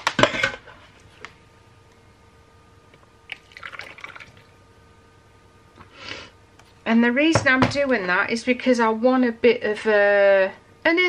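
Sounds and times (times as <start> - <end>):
thick batter pouring into jug: 3.3 - 4.5.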